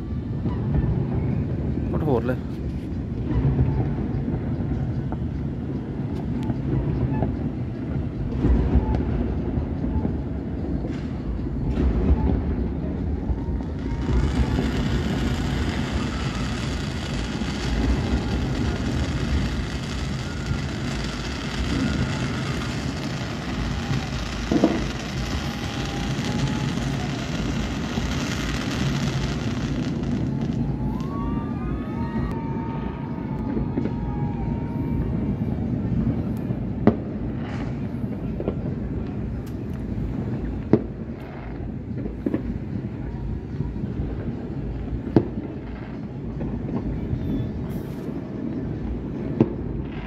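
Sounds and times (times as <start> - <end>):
distant fireworks rumbling: 0.0 - 50.0
loud firework thumps: 8.2 - 31.2.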